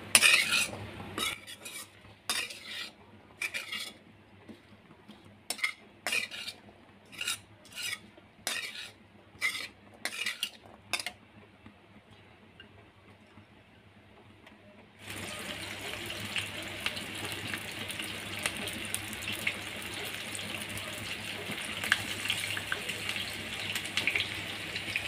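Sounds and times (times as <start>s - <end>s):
metal spatula scraping iron pan: 0.0s - 11.2s.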